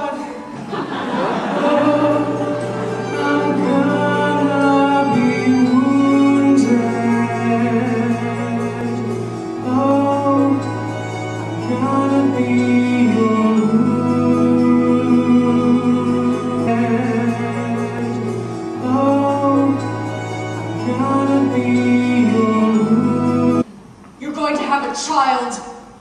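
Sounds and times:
instrumental accompaniment: 0:00.0 - 0:24.0
man singing into microphone: 0:01.6 - 0:10.8, 0:11.6 - 0:20.0, 0:20.7 - 0:23.6.

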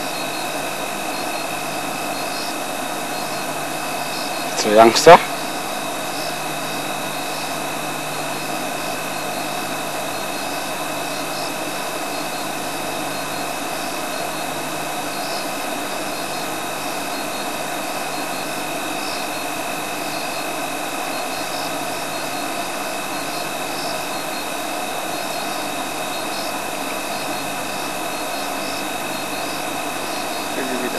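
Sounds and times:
steady high tones: 0:00.0 - 0:07.6
constant hiss: 0:00.0 - 0:30.9.

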